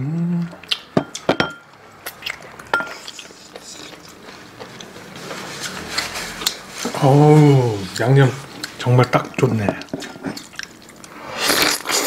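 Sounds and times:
wet chewing and lip smacking: 0:00.4 - 0:01.3, 0:02.0 - 0:06.6, 0:07.9 - 0:12.0
dish clinking: 0:01.0 - 0:01.7.

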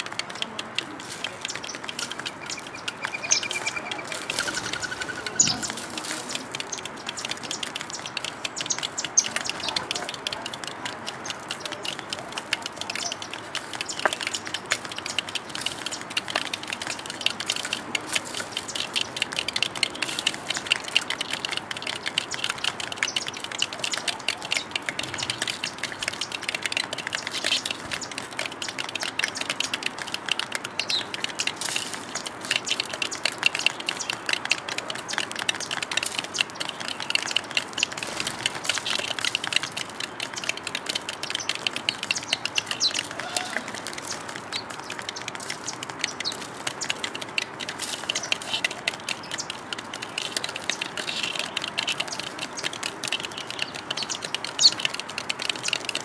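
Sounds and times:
birds pecking at metal tray: 0:00.0 - 0:56.0
sparrows chirping: 0:00.0 - 0:56.0.

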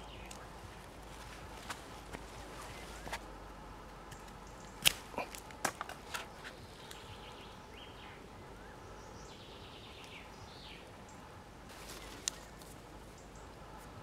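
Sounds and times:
knife clicks on a branch: 0:04.1 - 0:07.1, 0:12.2 - 0:12.8.

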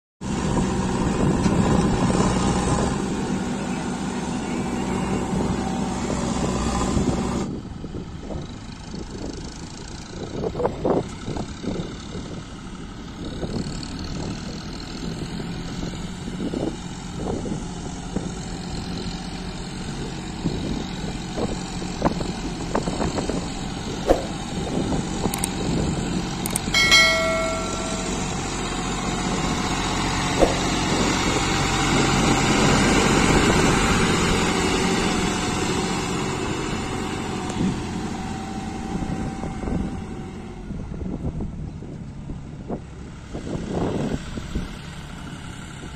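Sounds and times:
tractor diesel engine running: 0:00.2 - 0:45.9
knocks and rattles: 0:26.5 - 0:28.4, 0:30.4 - 0:31.2.

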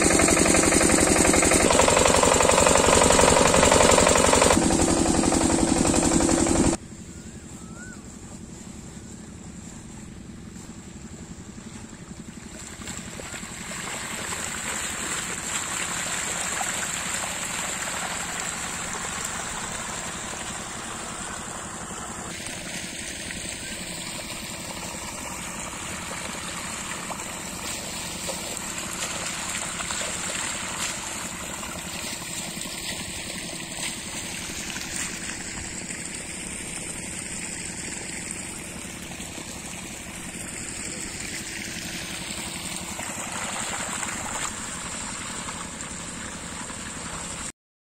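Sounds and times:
diesel water pump engine hum: 0:00.0 - 0:47.5
water flowing and trickling: 0:11.9 - 0:47.5.

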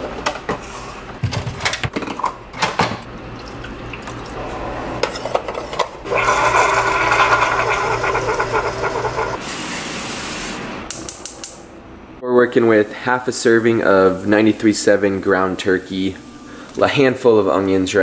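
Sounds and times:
coffee maker humming: 0:06.0 - 0:09.5
coffee streaming into mug: 0:06.1 - 0:09.4
cooking spray hissing: 0:06.1 - 0:10.8.

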